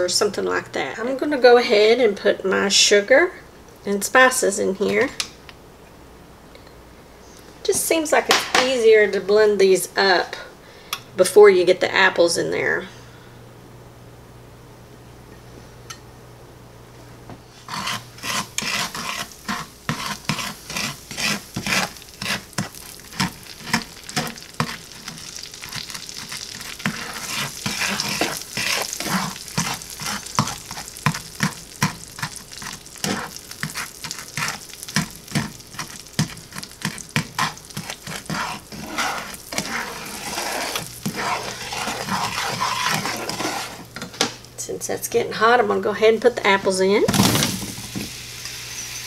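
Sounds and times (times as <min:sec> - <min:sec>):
butter sizzling in a skillet: 0:17.6 - 0:44.0, 0:47.1 - 0:49.0
spatula scraping and tapping pan: 0:17.6 - 0:44.3.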